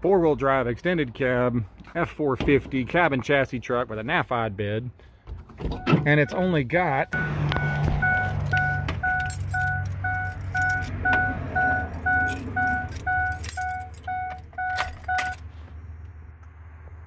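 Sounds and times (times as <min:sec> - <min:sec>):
dashboard warning chime: 0:05.8 - 0:15.4
keys jingling at ignition: 0:08.3 - 0:11.0, 0:11.7 - 0:15.5.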